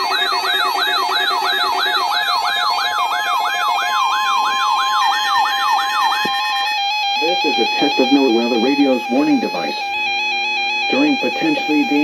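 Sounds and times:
siren-like alarm sweep: 0.0 - 12.0
steady electronic tones: 6.2 - 12.0.

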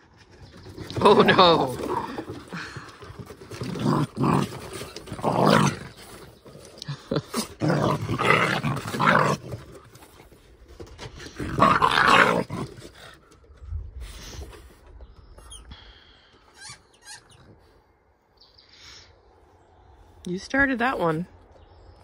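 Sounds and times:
dogs scuffling: 0.0 - 15.5
dogs growling: 0.6 - 13.5.

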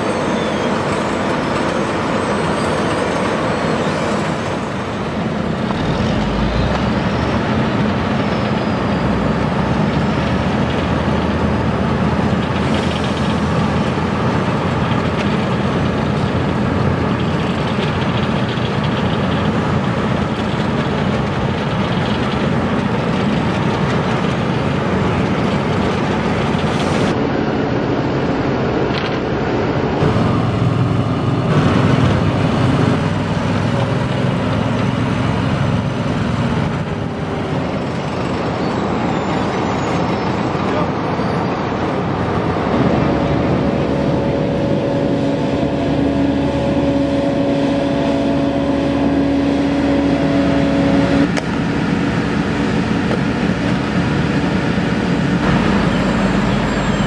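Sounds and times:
diesel engines of paving machinery: 0.0 - 57.0.

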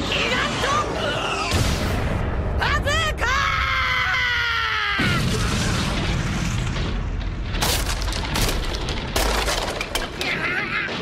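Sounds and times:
sharp crashing cracks: 5.1 - 10.4.

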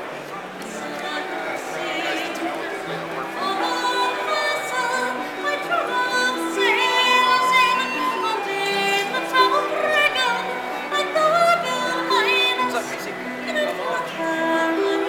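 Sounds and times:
tin whistle melody: 3.3 - 15.0.

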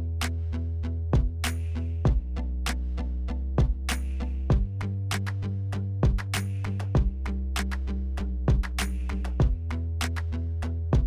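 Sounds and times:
instrumental beat music: 0.0 - 11.0
kick drum: 1.2 - 1.4, 2.1 - 2.3, 3.6 - 3.9, 4.5 - 4.8, 6.0 - 6.4, 7.0 - 7.2, 8.5 - 8.8, 9.4 - 9.6.

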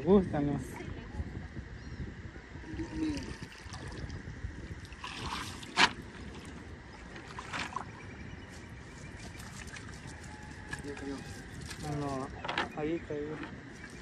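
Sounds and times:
water dripping and sloshing: 3.0 - 8.0
wet net hauled over boat: 4.8 - 14.0.

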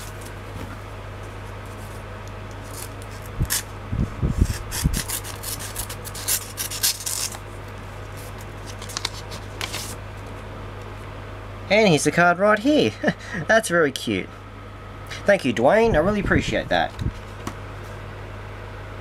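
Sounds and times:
cardboard and paper rustling: 8.1 - 10.0.

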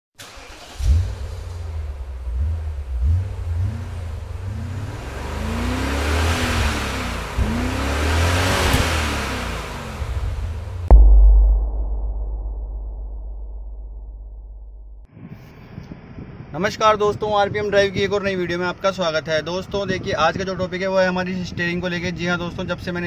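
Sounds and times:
car engine revving: 0.2 - 11.0.

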